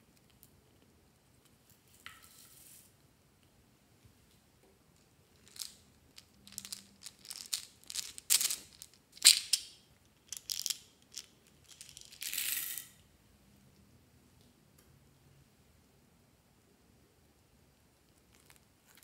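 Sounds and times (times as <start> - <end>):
beads pouring out rattling: 5.4 - 9.6, 10.3 - 12.9
plastic jar clicks and crackles: 5.4 - 12.3.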